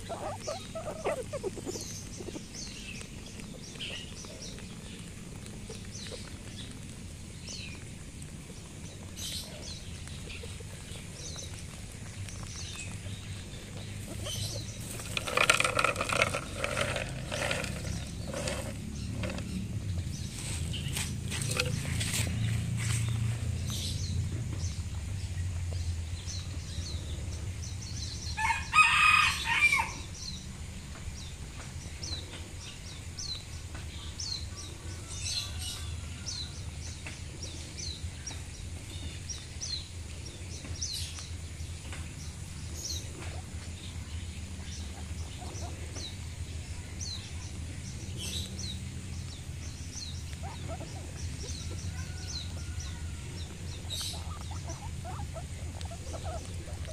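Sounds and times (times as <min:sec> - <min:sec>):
rooster crowing: 0:28.4 - 0:30.0, 0:35.0 - 0:36.7, 0:51.9 - 0:53.6.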